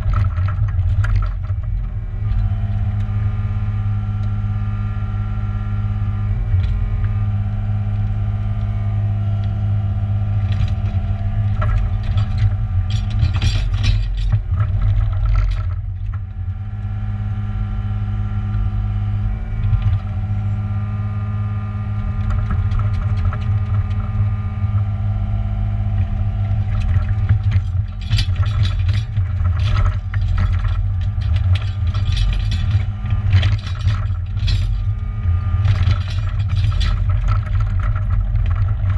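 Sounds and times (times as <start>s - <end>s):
excavator diesel engine running: 26.0s - 38.9s
bucket scraping through stony soil: 26.3s - 38.9s.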